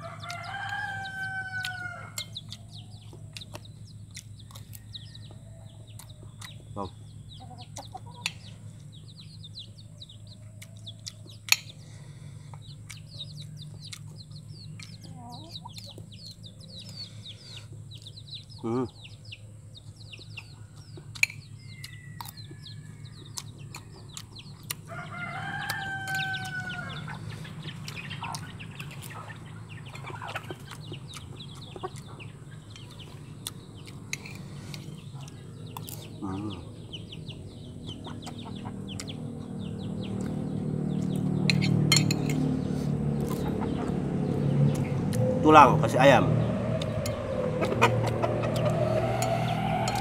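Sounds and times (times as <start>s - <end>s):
rooster crowing: 0.0s - 2.3s, 24.8s - 27.2s, 45.2s - 50.0s
chickens calling: 0.0s - 50.0s
vehicle engine rumble: 0.0s - 50.0s
spoon clicking on plate: 41.5s - 42.4s.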